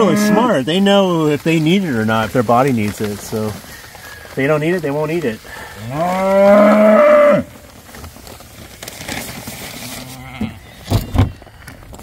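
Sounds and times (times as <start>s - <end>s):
cow mooing: 0.0s - 0.6s, 5.8s - 7.5s.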